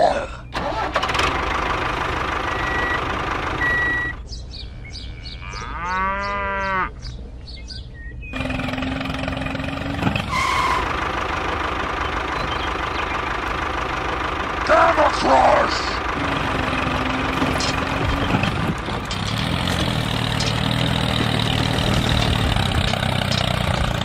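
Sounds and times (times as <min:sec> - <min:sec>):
cow mooing: 0:04.9 - 0:07.0, 0:08.4 - 0:10.9, 0:16.2 - 0:18.4
small motor running: 0:08.4 - 0:14.3.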